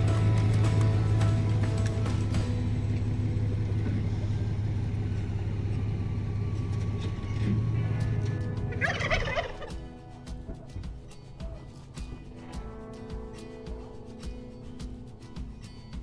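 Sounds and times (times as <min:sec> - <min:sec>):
turkey gobbling: 0:08.7 - 0:09.8.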